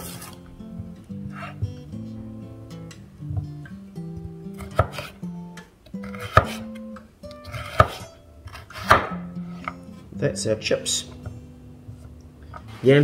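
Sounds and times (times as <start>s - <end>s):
background music: 0.0s - 13.0s
knife striking chopping board: 4.6s - 5.1s, 6.0s - 6.6s, 7.4s - 9.8s.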